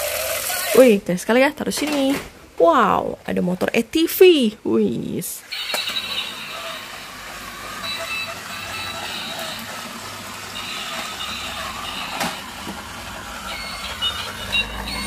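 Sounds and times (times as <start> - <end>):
toy electric motor whirring: 0.0 - 0.9, 5.5 - 15.0
high electronic toy tones: 5.4 - 15.0
plastic wheels rolling on wood: 5.5 - 15.0.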